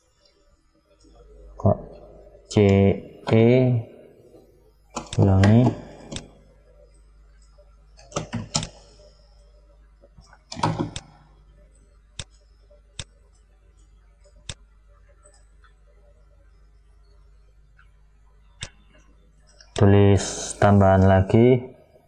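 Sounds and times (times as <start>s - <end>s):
faint steady low hum: 0.0s - 22.0s
computer mouse and keyboard clicks: 4.9s - 6.4s, 7.3s - 9.1s, 10.0s - 15.9s.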